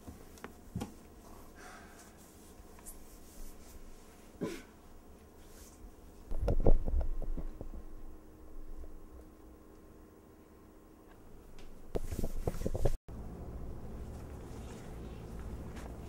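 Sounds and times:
cloth rubbing against microphone: 2.2 - 4.4, 11.9 - 13.0.

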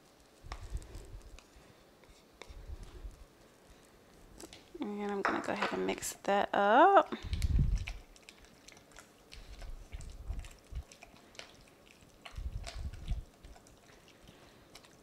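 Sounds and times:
utensil stirring batter in bowl: 0.0 - 6.2.

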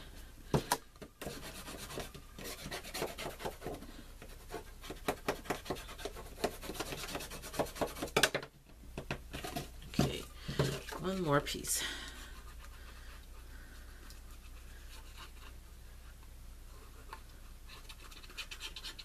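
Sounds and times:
small taps and scrapes: 0.5 - 11.3.

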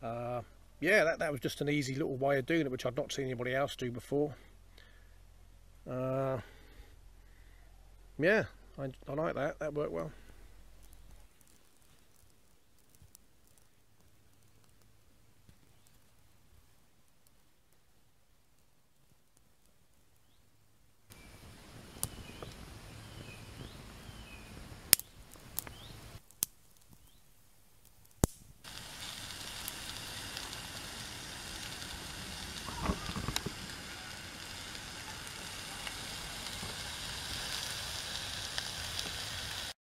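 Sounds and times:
twigs burning and crackling: 8.6 - 39.8
sausages sizzling in a pan: 21.1 - 27.2, 27.9 - 39.8.

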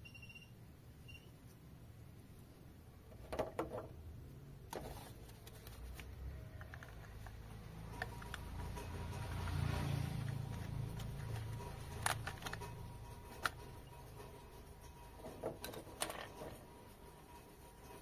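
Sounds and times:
screwdriver clicking on plastic parts: 10.5 - 12.7.

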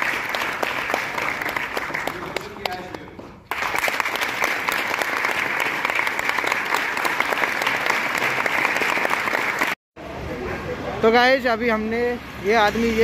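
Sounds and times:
audience applauding: 0.0 - 9.8.

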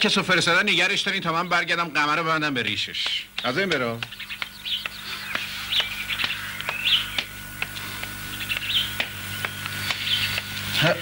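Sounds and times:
faint steady hum: 0.0 - 11.0
birds chirping: 0.5 - 11.0
footsteps on brick paving: 3.0 - 11.0.

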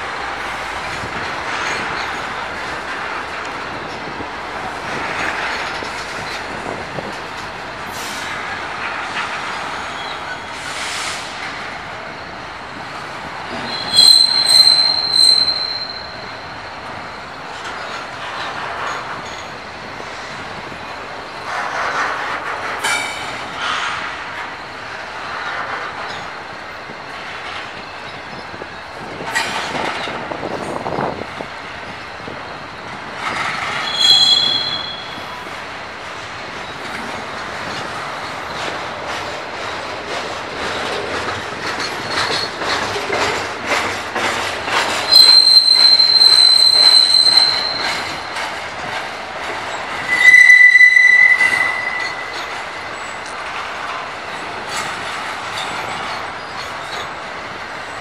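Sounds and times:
freight train wheels rumbling and clacking: 0.0 - 58.0
high-pitched wheel squeal: 13.5 - 16.3, 33.7 - 35.4, 45.1 - 48.4, 50.0 - 53.0.

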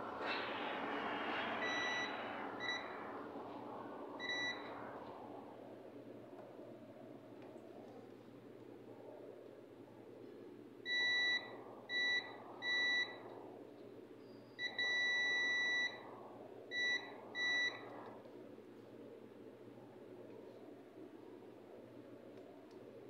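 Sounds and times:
multimeter continuity beeps: 4.2 - 4.7, 10.9 - 13.2, 14.6 - 16.0, 16.7 - 17.8.

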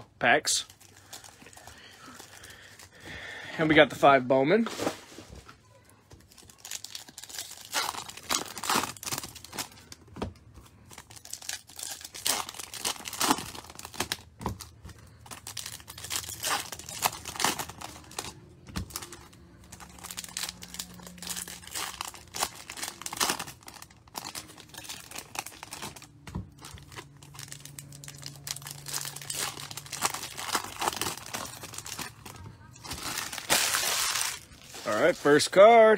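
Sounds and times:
foil wrappers crinkling and tearing: 0.6 - 3.0, 6.2 - 35.9.

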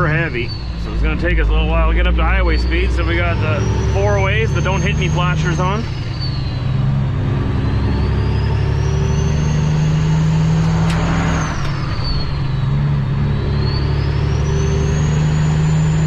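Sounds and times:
diesel truck engine accelerating: 0.0 - 16.0
high whistle: 7.5 - 16.0.

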